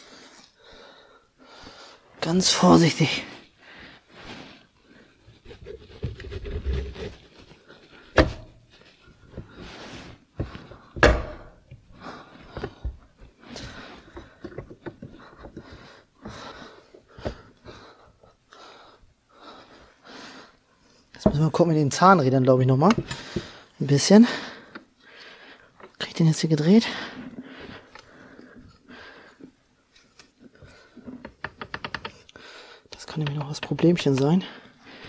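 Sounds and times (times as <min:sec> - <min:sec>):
sharp knocks: 0:11.0 - 0:11.5.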